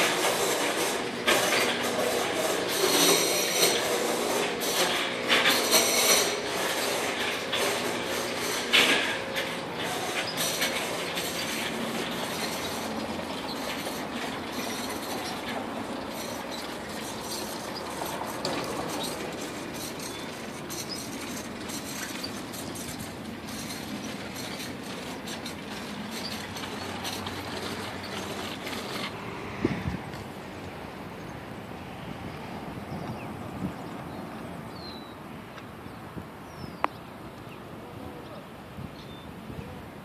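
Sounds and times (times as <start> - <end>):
bike rattling and clicking: 0.0 - 30.7
bicycle tyres rolling on pavement: 0.0 - 38.2.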